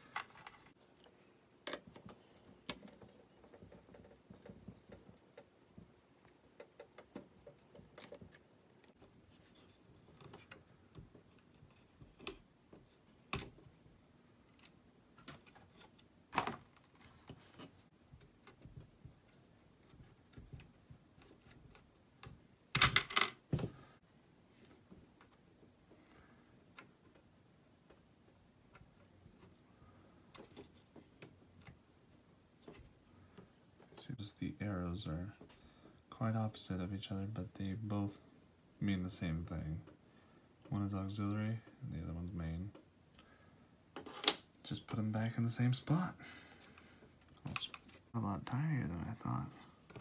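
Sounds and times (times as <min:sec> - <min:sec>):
clicks and clatter of parts: 0:00.0 - 0:00.8.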